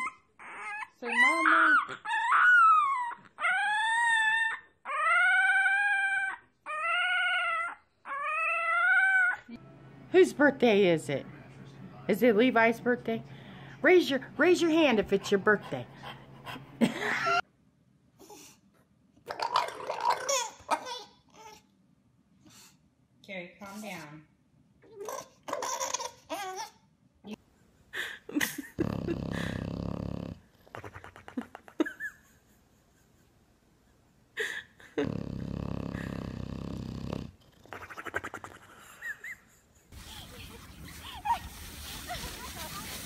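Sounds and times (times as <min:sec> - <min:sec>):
fluttering breath: 0:13.2 - 0:13.8
dogs grumbling: 0:28.4 - 0:31.4, 0:34.8 - 0:39.0.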